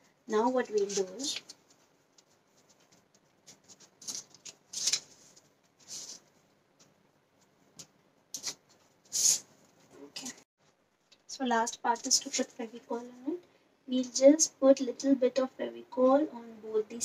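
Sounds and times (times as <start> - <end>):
paper rustling and scraping: 0.6 - 6.4.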